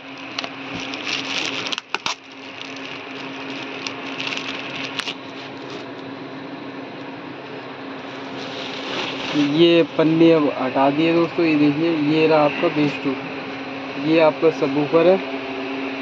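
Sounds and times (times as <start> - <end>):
plastic wrapping crinkling: 0.0 - 6.0, 8.0 - 9.8
steady low hum: 0.0 - 16.0.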